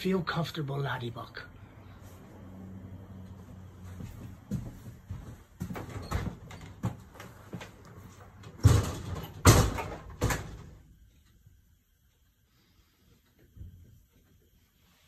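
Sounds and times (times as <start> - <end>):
footsteps on a hard floor: 3.3 - 8.3
glass-panelled door banging shut: 8.6 - 10.7.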